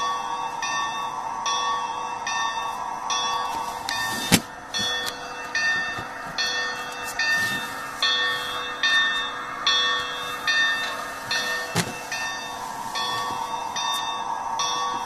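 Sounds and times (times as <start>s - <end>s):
faint steady hum: 0.0s - 15.0s
locomotive bell ringing: 0.0s - 15.0s.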